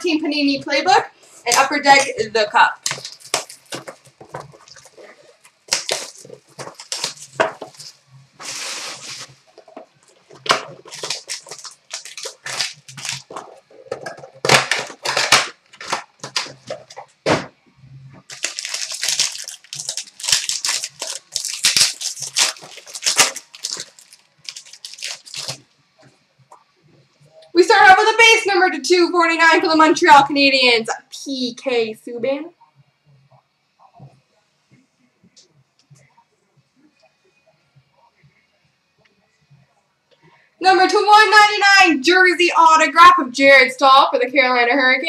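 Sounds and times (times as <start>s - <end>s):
plastic wrappers crinkling and tearing: 2.8s - 17.2s, 18.2s - 25.7s.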